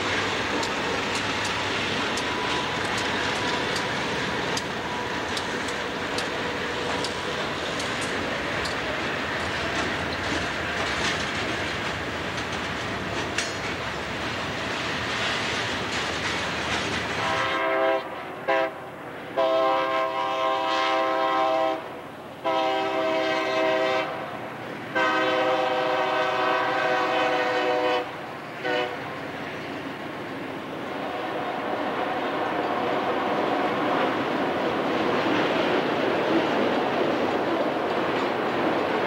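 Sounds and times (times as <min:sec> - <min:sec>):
train wheels rumbling on rails: 0:00.0 - 0:39.0
locomotive air horn: 0:17.2 - 0:24.3, 0:24.9 - 0:29.2.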